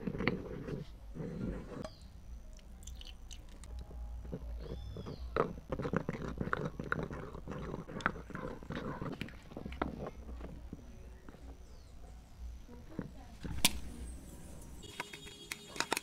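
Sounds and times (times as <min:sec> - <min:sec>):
pestle grinding in a mortar: 0:03.3 - 0:11.9.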